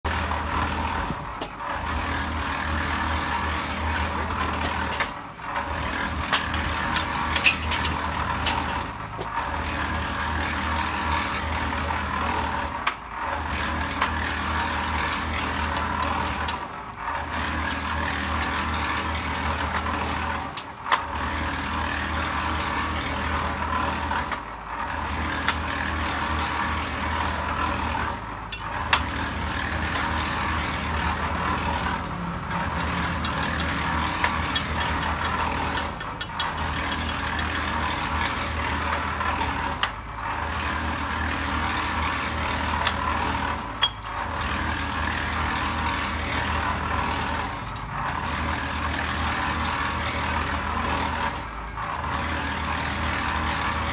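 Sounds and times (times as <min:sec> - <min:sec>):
machine running with low hum: 0:00.0 - 0:53.9.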